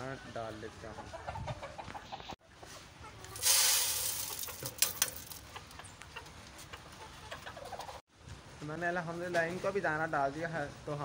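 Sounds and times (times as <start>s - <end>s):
hens clucking: 0.0s - 8.0s
grain poured into metal pan: 3.4s - 5.4s.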